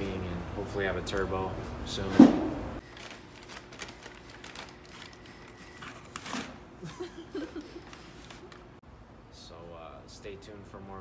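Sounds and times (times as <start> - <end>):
cardboard and plastic rustling: 2.8 - 6.6, 7.5 - 8.7.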